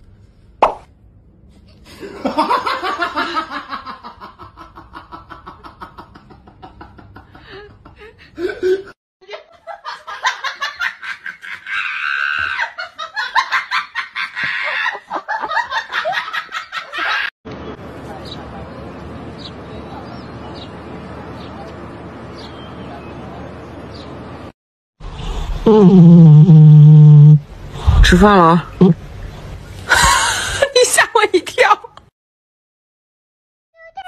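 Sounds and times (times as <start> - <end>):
people laughing hard: 1.9 - 17.3.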